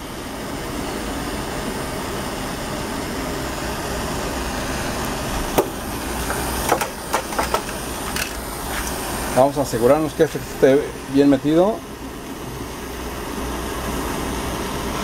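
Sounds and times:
gas torch hissing: 0.0 - 15.0
sharp knocks of torch handling: 5.6 - 9.0.

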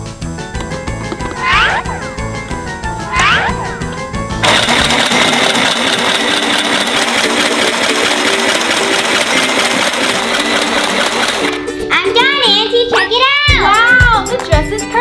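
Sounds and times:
sewing machine running: 4.4 - 11.7.

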